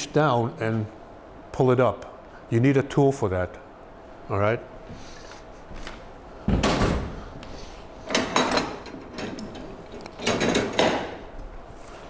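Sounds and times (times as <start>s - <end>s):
knocking and rattling: 10.2s - 11.2s.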